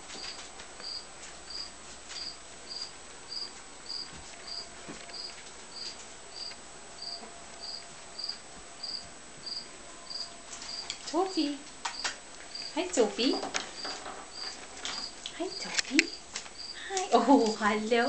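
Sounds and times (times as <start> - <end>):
puppies scuffling on carpet: 0.0 - 6.2
insect chirping: 0.2 - 16.9.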